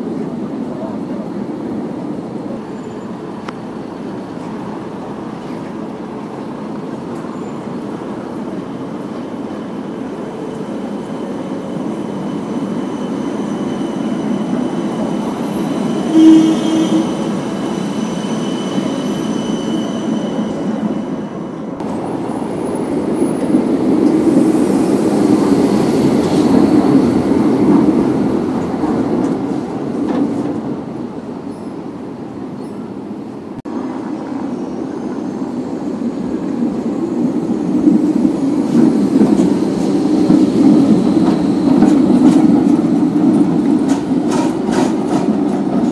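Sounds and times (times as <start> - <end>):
older tram rolling past: 0.0 - 45.9
tram rolling past: 0.0 - 45.9
faint high wheel squeal: 9.6 - 21.7
brief loud tram tone: 15.9 - 21.1.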